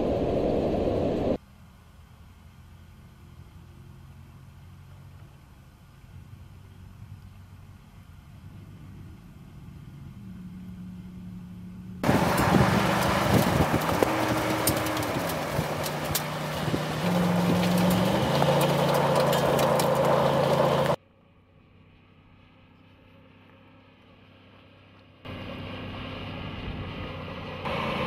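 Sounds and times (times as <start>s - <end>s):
truck engine running hard: 7.7s - 21.0s, 25.3s - 28.0s
sand and grit thrown by tyres: 12.0s - 21.0s.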